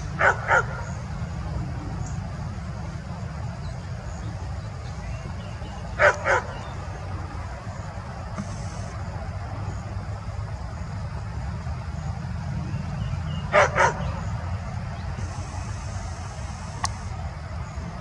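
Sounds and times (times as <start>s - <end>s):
steady low rumble: 0.0s - 18.0s
dog barking: 0.2s - 0.9s, 6.0s - 6.6s, 13.5s - 14.2s.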